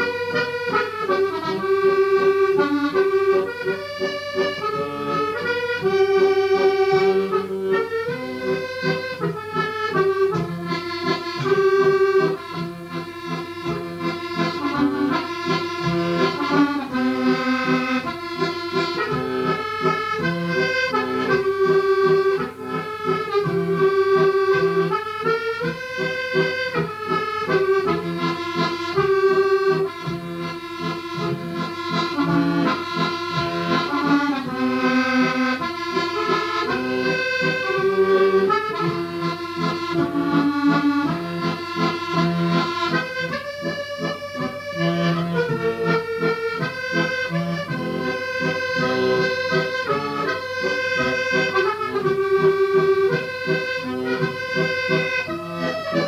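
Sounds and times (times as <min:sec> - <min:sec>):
accordion music: 0:00.0 - 0:56.0.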